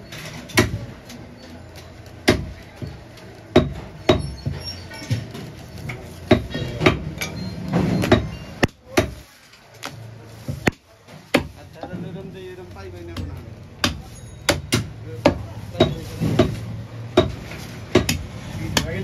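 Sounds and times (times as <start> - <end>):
cleaver chopping on wooden block: 13.2 - 16.6, 17.2 - 18.9.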